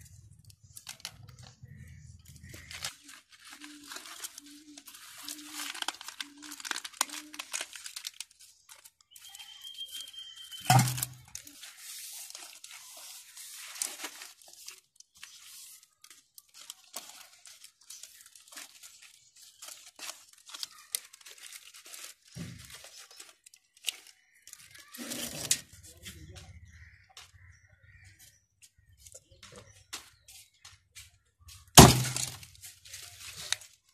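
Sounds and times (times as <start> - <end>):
leaves rustling and crinkling: 0.0 - 33.9.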